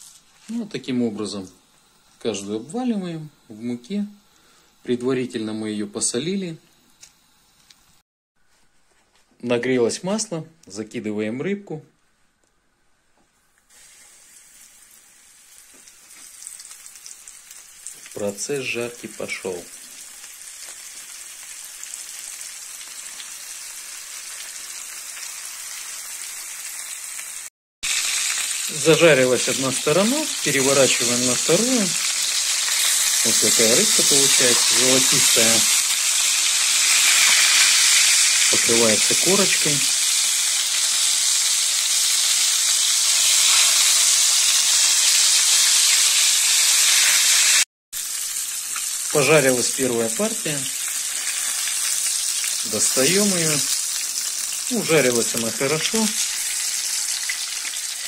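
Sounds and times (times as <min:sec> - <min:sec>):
fish sizzling in hot oil: 0:13.7 - 0:58.0.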